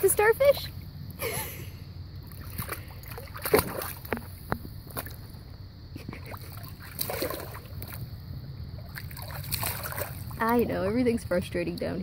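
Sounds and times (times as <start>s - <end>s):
sharp water splashes: 2.2s - 5.2s, 6.2s - 8.1s, 8.8s - 10.8s
water sloshing in plastic pool: 2.2s - 5.4s, 6.1s - 12.0s.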